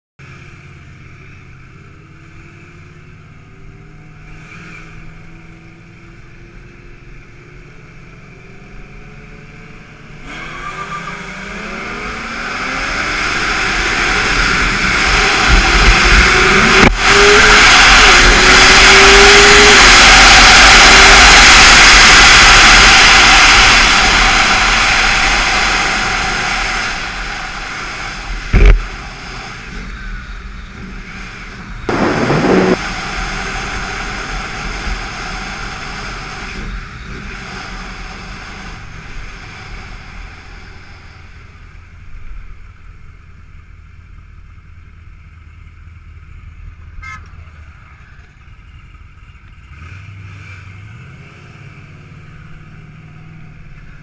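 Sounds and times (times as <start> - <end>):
motorcycle engine at full throttle: 0.2 - 54.0
engine rev burst: 10.2 - 41.6
wind roar on microphone: 12.9 - 29.5, 31.8 - 40.4
sharp thump: 28.5 - 28.9.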